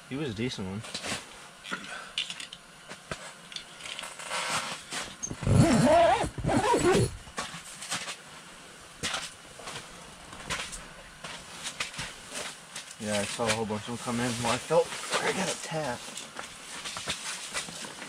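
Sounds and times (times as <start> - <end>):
high wavering whining cry: 5.2 - 7.2.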